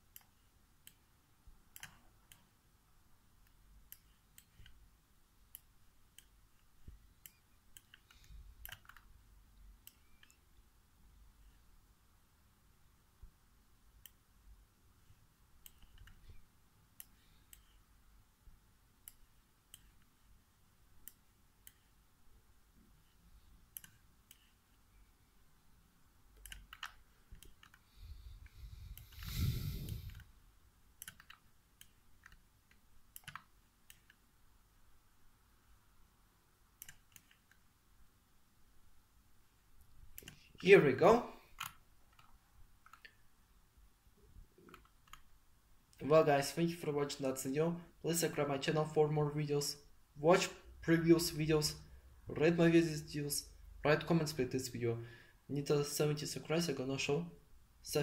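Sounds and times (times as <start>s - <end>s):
computer mouse clicks: 1.7s - 2.5s, 3.4s - 4.8s, 5.5s - 9.1s, 9.8s - 10.5s, 14.0s - 14.2s, 15.6s - 16.4s, 17.0s - 17.8s, 19.0s - 20.1s, 21.0s - 22.0s, 23.7s - 24.6s, 26.4s - 30.3s, 31.0s - 34.2s, 36.8s - 37.6s, 40.0s - 40.6s, 41.5s - 43.2s, 44.6s - 45.3s.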